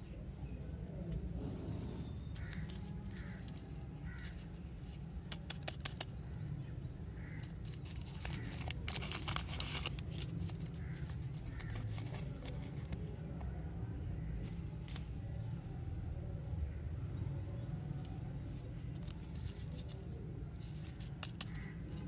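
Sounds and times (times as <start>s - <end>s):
plastic wrapper crinkling: 1.7s - 6.2s, 7.3s - 13.1s.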